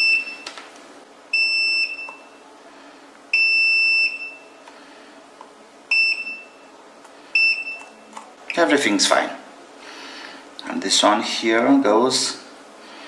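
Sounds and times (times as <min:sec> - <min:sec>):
multimeter high beeps: 0:00.0 - 0:00.5, 0:01.3 - 0:02.4, 0:03.3 - 0:04.6, 0:05.9 - 0:06.7, 0:07.4 - 0:08.0.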